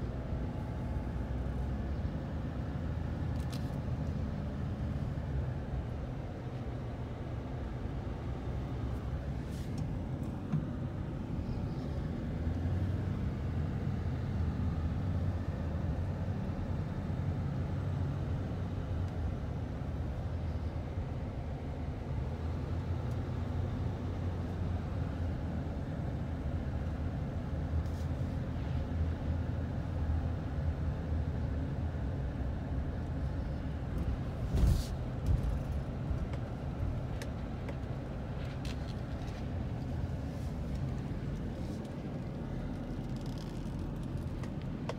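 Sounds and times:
pickup truck engine and road rumble: 0:00.0 - 0:44.9.

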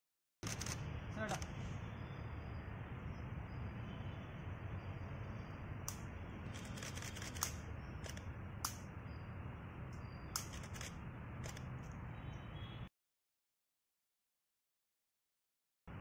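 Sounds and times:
short sharp clicks: 0:05.9 - 0:08.8.

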